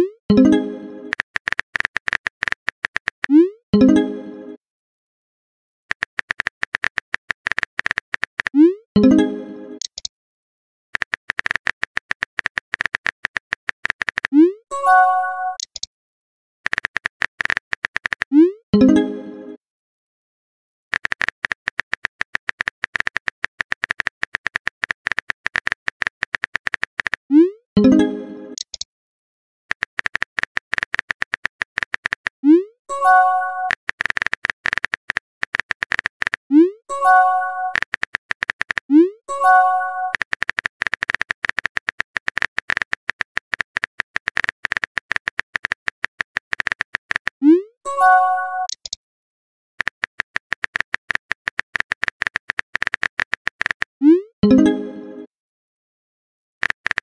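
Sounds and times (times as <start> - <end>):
chat pop tone: 0.0 - 1.2, 36.5 - 37.9, 38.9 - 40.2, 47.4 - 48.8, 54.0 - 55.3
keyboard typing clicks: 0.3 - 3.4, 5.9 - 9.2, 9.8 - 10.1, 11.0 - 14.6, 15.5 - 15.9, 16.7 - 18.4, 20.9 - 27.3, 28.6 - 28.8, 29.7 - 32.4, 33.1 - 47.4, 48.6 - 49.0, 49.8 - 54.8, 56.6 - 57.0
message chime: 54.4 - 55.3.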